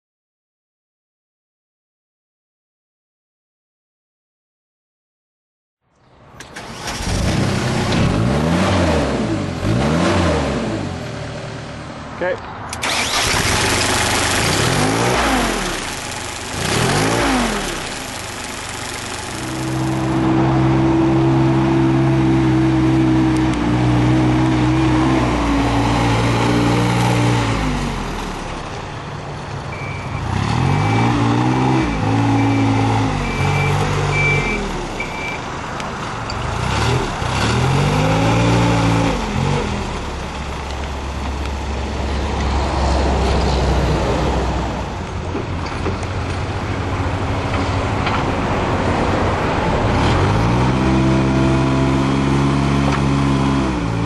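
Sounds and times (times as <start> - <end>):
diesel engine revving: 6.4 - 54.0
beeper: 31.8 - 35.4.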